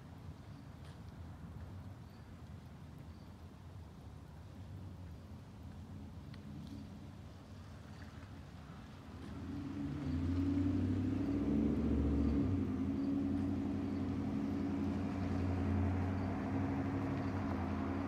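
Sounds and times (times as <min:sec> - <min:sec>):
vehicle engine humming: 0:09.1 - 0:18.0.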